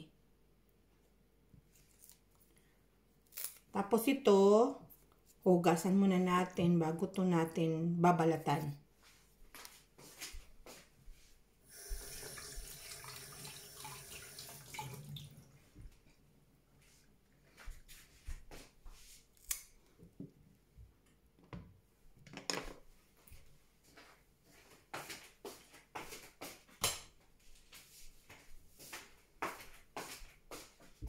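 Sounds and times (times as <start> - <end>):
kitchen tap running: 11.7 - 15.6.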